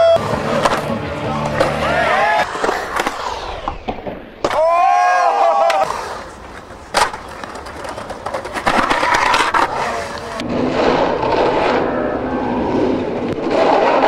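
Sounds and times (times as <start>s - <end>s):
skateboard clack: 0.0s - 10.5s
skateboard wheels rolling on concrete: 0.0s - 14.0s.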